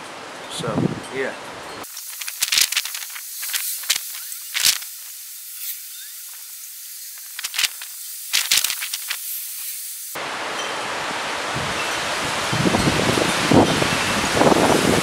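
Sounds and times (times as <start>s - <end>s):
sharp crackles: 1.8s - 10.2s
storm wind hissing: 11.1s - 15.0s.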